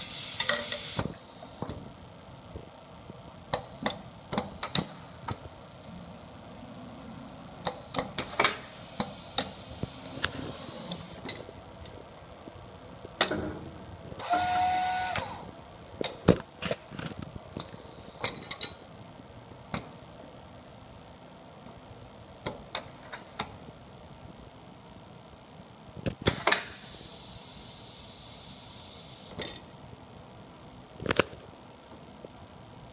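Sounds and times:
air hissing: 0.0s - 1.5s, 8.2s - 11.2s, 26.3s - 29.4s
pneumatic cylinders clicking: 0.0s - 1.7s, 7.7s - 11.4s, 26.2s - 27.2s
small motor whirring: 8.2s - 11.2s, 14.2s - 15.5s.

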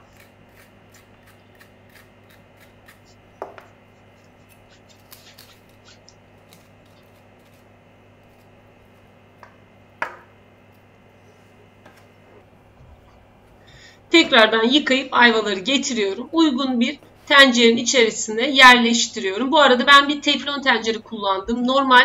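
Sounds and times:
knife scraping and cutting fruit: 0.0s - 9.0s.

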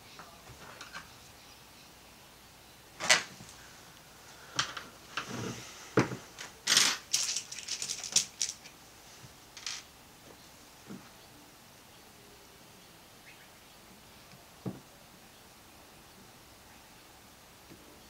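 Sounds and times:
rustling: 3.0s - 9.9s
small parts clicking and knocking: 4.5s - 5.3s, 6.0s - 8.8s, 9.6s - 9.9s.

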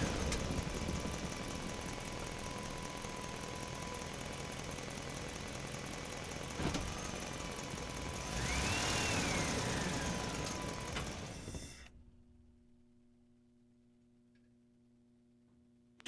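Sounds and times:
tractor diesel engine running: 0.0s - 12.1s.

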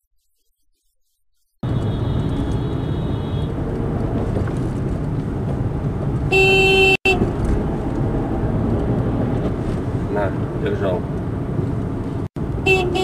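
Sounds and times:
car horn: 1.6s - 3.6s, 6.3s - 7.3s, 12.6s - 13.0s
moving car road noise: 1.6s - 13.0s.

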